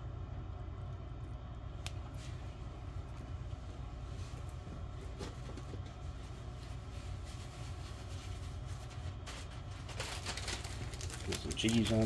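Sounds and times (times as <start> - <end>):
low background hum: 0.0 - 12.0
plastic bag crinkling: 9.0 - 12.0.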